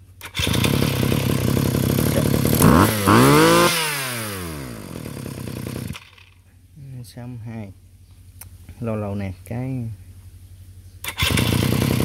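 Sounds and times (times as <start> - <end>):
brush cutter engine revving: 0.2 - 6.3, 11.0 - 12.0.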